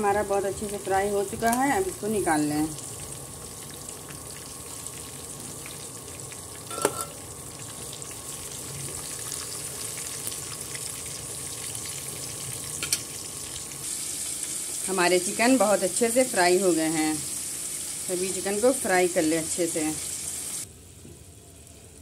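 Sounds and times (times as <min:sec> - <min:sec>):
chicken deep-frying in oil: 0:00.0 - 0:22.0
metal spoon clinking on pan: 0:06.7 - 0:07.2.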